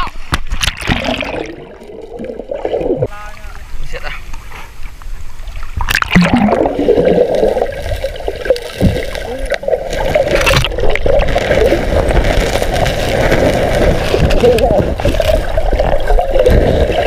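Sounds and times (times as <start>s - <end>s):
water splashes: 0.0s - 17.0s
river water gurgling and rushing: 5.8s - 17.0s.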